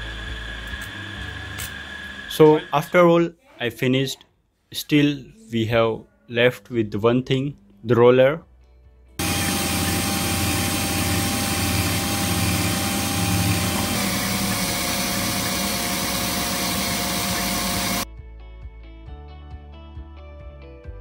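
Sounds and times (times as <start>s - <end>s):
cordless drill whining: 9.2s - 18.1s.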